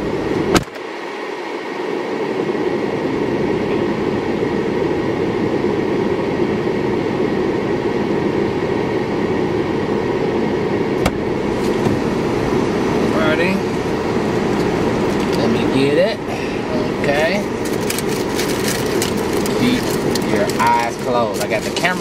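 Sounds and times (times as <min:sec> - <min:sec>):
car air conditioning blowing: 0:00.0 - 0:22.0
car door click: 0:11.0 - 0:12.0.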